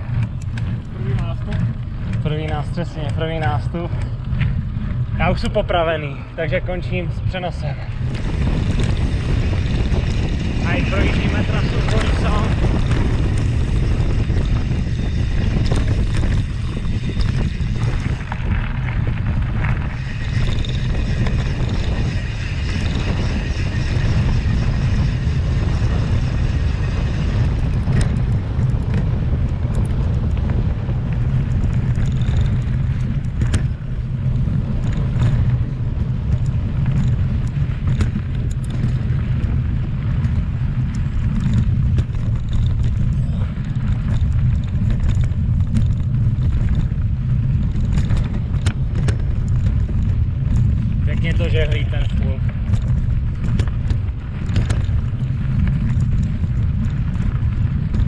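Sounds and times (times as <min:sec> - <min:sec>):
bike clicks and rattles: 0:00.0 - 0:58.0
wind rumble on microphone: 0:00.0 - 0:58.0.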